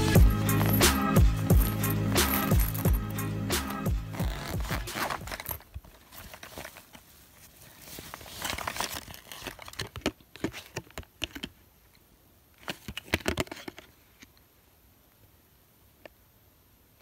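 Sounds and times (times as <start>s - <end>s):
paper packaging rustling and crinkling: 4.1s - 11.6s, 12.6s - 14.2s.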